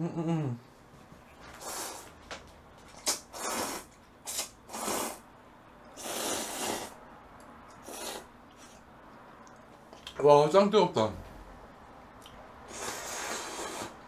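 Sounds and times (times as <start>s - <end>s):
person slurping noodles: 1.6s - 2.1s, 3.0s - 5.2s, 6.0s - 7.0s, 7.8s - 8.8s, 12.7s - 14.0s.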